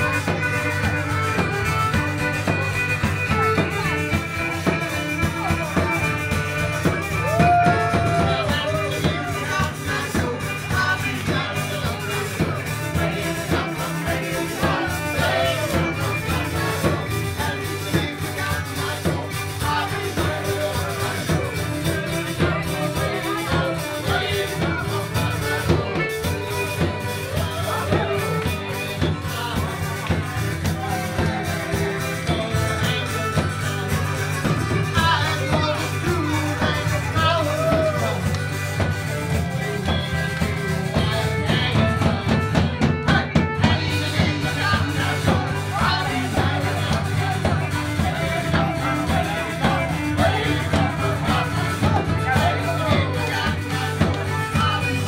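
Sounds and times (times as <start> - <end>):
drum kit: 0.0 - 55.0
live rock band playing: 0.0 - 55.0
man singing: 0.0 - 55.0
steady bass line: 0.0 - 55.0.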